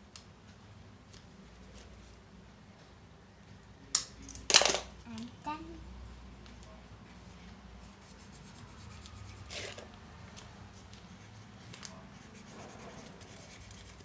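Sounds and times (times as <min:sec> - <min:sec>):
marker scratching on paper: 0:07.8 - 0:09.9, 0:10.6 - 0:14.0.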